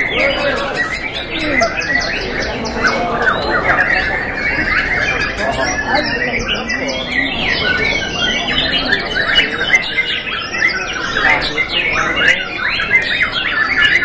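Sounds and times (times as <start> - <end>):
many birds singing: 0.0 - 14.0
people's voices: 0.0 - 14.0.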